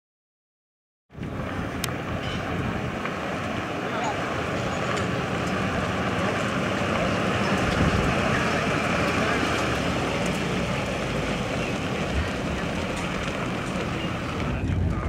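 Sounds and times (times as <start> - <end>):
truck engine rumble: 1.1 - 15.0
tyres rolling: 1.2 - 15.0
wind on microphone: 7.4 - 8.6, 14.0 - 15.0.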